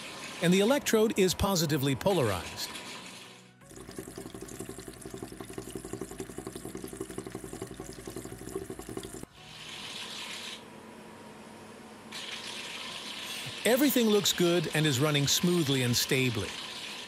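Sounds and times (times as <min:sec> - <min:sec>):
liquid running from nozzle: 0:00.0 - 0:10.6.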